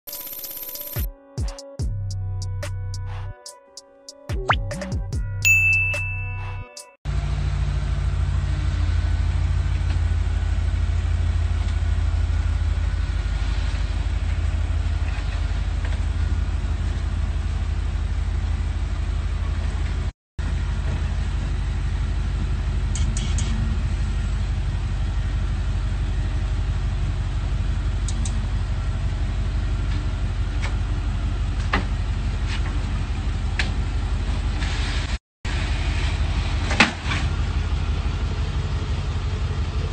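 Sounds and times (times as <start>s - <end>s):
car engine idling: 37.3s - 39.9s.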